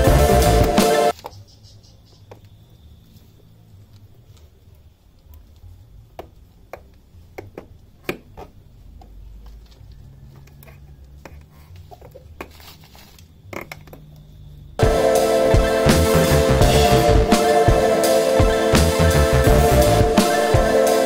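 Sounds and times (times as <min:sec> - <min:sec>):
soft clicks and scuffs: 0:08.0 - 0:13.3.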